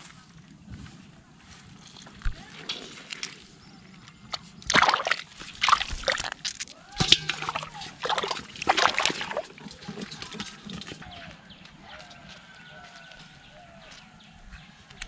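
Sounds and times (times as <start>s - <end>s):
hands splashing in water: 4.7s - 11.0s.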